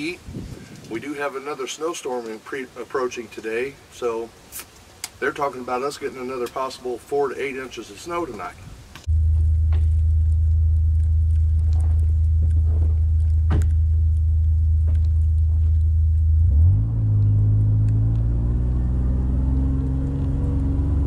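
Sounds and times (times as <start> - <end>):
vehicle engine running: 9.1 - 21.0.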